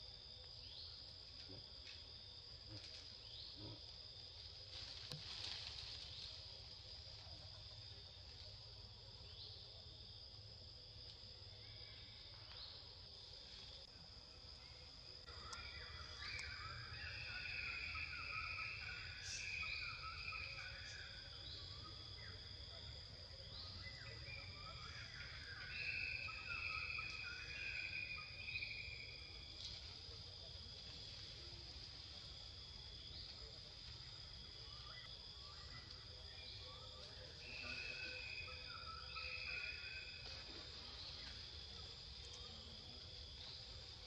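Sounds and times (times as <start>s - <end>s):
insects chirring: 0.0s - 44.0s.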